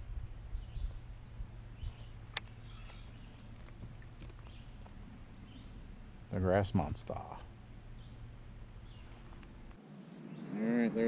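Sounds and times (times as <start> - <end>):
steady low rumble: 0.0 - 11.0
sharp click: 2.3 - 2.5.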